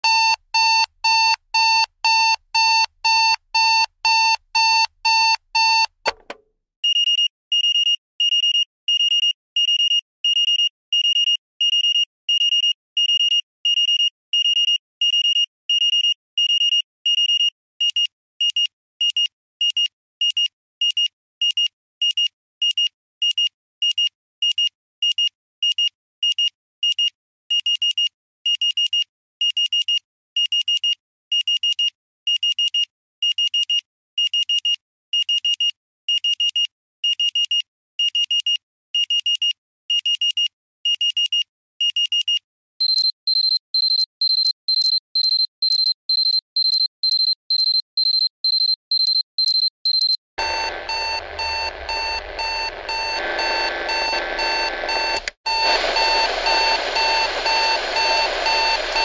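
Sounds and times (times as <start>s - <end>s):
digital alarm clock beeping: 41.0s - 59.0s.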